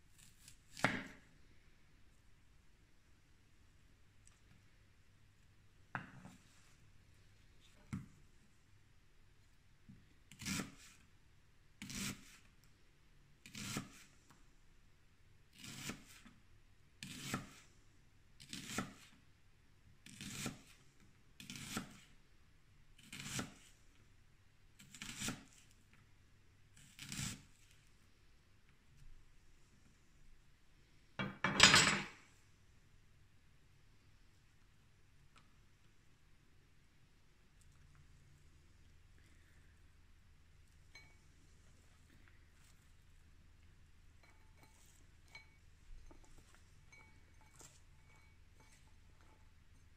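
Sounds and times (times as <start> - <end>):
knife slicing onion on board: 0.1 - 1.2, 10.3 - 11.0, 11.8 - 12.4, 13.4 - 14.1, 15.5 - 16.3, 17.0 - 17.6, 18.4 - 19.1, 20.0 - 20.7, 21.4 - 22.0, 23.0 - 23.7, 24.8 - 25.6, 26.8 - 27.5.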